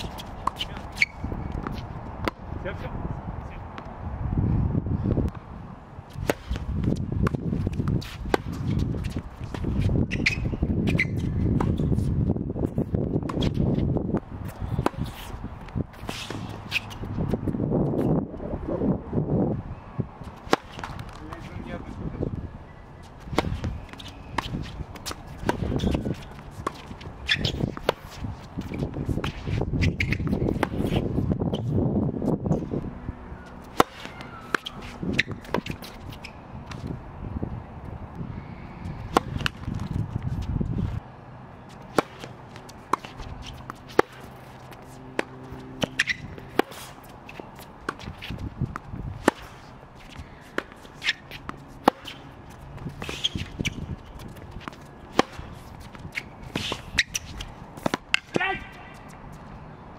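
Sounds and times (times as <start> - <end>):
tennis ball bouncing: 0.0 - 2.5, 6.1 - 12.1, 12.7 - 18.1, 20.3 - 21.7, 23.0 - 31.7, 33.5 - 37.0, 39.0 - 41.0, 41.7 - 59.6
quick footsteps on court: 6.1 - 18.1, 23.0 - 31.8, 39.1 - 41.0, 41.6 - 59.7.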